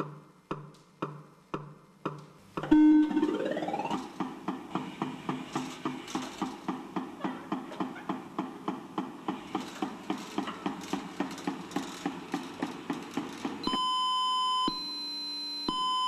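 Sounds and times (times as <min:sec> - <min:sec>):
electronic battery alert beep: 0:02.6 - 0:04.0.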